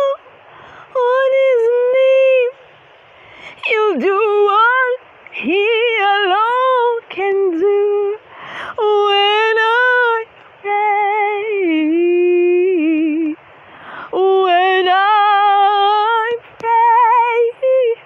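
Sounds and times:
woman singing unaccompanied: 0:00.0 - 0:18.0
woman breathing: 0:00.5 - 0:00.9, 0:08.3 - 0:08.8, 0:13.6 - 0:14.2.

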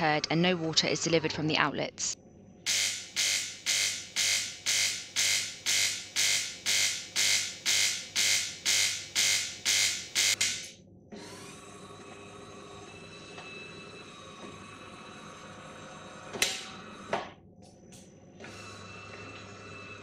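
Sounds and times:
coffee machine pump buzzing: 0:02.7 - 0:10.6, 0:18.4 - 0:20.0.

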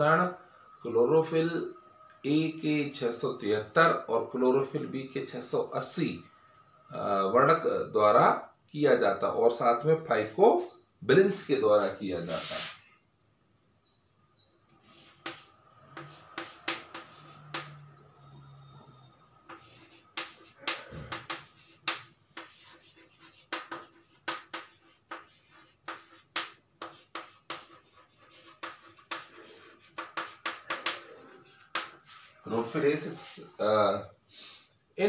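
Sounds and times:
chalk tapping and scratching: 0:12.3 - 0:12.8, 0:14.8 - 0:32.7.

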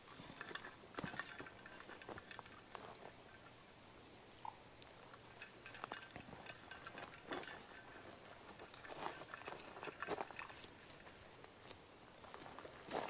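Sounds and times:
footsteps on hiking trail: 0:00.0 - 0:03.5, 0:05.2 - 0:13.0.

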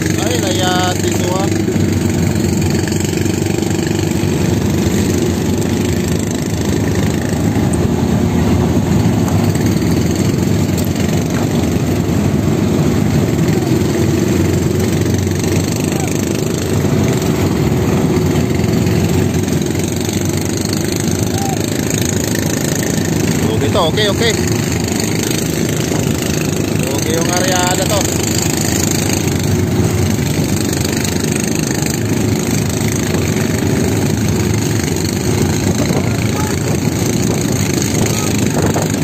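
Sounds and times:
boat engine running: 0:00.0 - 0:39.0
water rushing along hull: 0:00.0 - 0:39.0.

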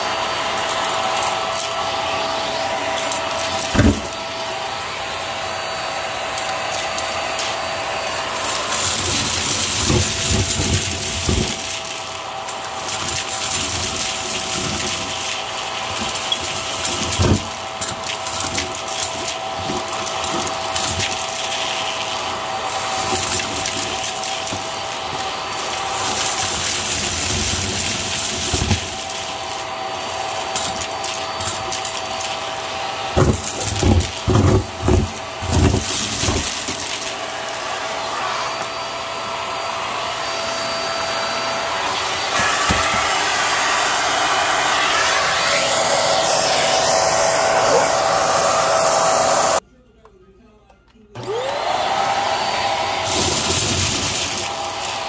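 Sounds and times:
vacuum cleaner running: 0:00.0 - 0:49.6, 0:51.2 - 0:55.0
loud low thuds in vacuum hose: 0:03.7 - 0:04.2.

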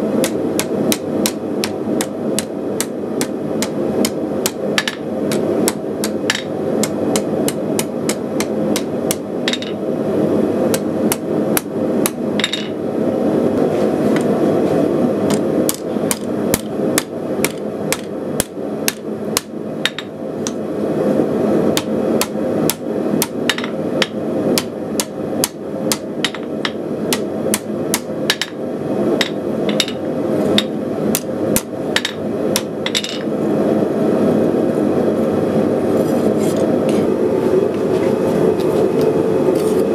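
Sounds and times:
hammer striking metal on anvil: 0:00.2 - 0:09.8, 0:10.7 - 0:12.8, 0:21.8 - 0:28.6, 0:29.2 - 0:33.3.

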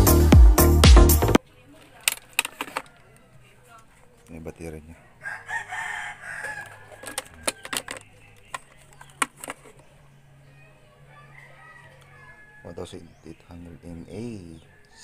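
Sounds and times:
plastic parts clicking: 0:01.8 - 0:03.0, 0:06.4 - 0:09.8
rooster crowing: 0:05.1 - 0:08.0, 0:10.5 - 0:13.2, 0:14.6 - 0:15.0.

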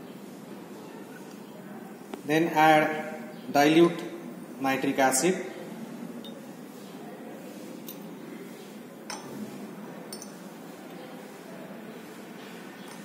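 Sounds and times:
glass clinks: 0:06.2 - 0:06.5, 0:09.1 - 0:09.3, 0:10.1 - 0:10.4.

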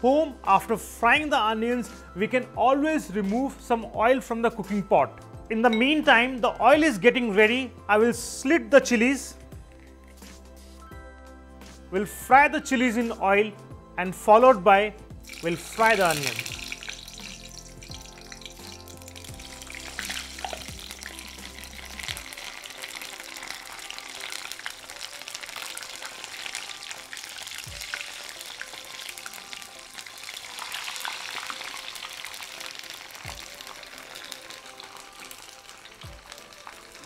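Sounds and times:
chillies deep-frying in oil: 0:15.2 - 0:37.0.

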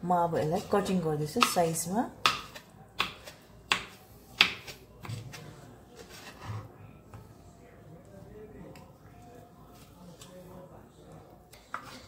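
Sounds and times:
knife chopping on board: 0:01.4 - 0:05.4.

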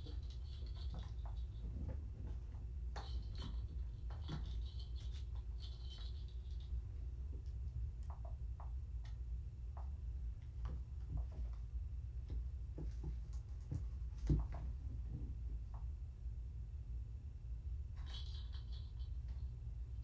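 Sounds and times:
light rattling of toys: 0:00.0 - 0:09.2, 0:17.9 - 0:20.0
steady low hum: 0:00.0 - 0:20.0.

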